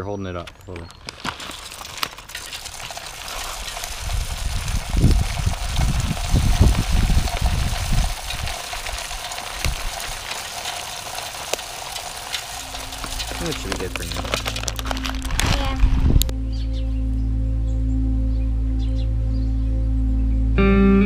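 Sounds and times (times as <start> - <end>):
seeds ticking on concrete: 0.3 - 16.3
birdseed pouring into plastic feeder: 0.9 - 15.8
low rumble: 3.8 - 10.0, 12.6 - 21.0.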